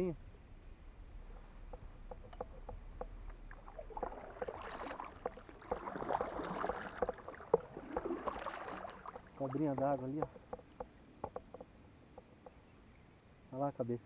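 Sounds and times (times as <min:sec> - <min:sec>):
paddle knocking against kayak: 0:01.3 - 0:12.6
paddle splashing in water: 0:01.6 - 0:11.7.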